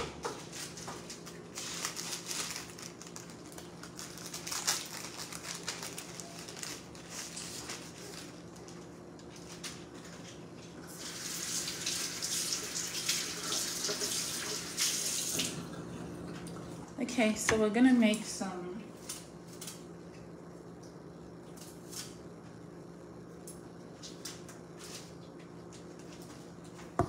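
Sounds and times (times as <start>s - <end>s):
tap water running into sink: 11.1s - 15.7s.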